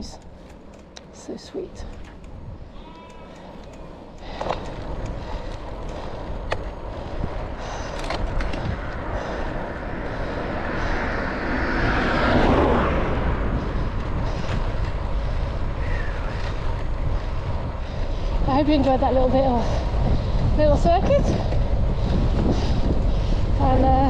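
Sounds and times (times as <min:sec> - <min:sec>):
bike tyres rolling on tarmac: 0:00.0 - 0:24.0
wind rushing over camera: 0:00.0 - 0:24.0
sharp clicks: 0:01.8 - 0:06.6.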